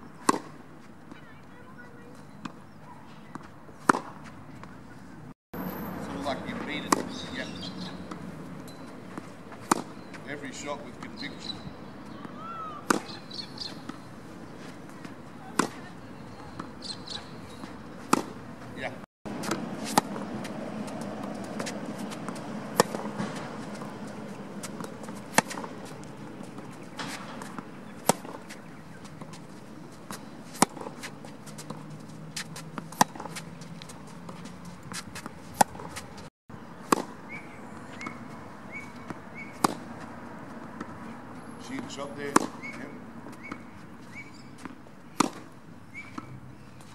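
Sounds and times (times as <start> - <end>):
tennis ball struck by racket: 0.2 - 0.6, 2.4 - 4.8, 6.0 - 18.6, 19.3 - 41.1, 41.7 - 46.4
ball bouncing: 11.9 - 14.0, 19.3 - 36.2.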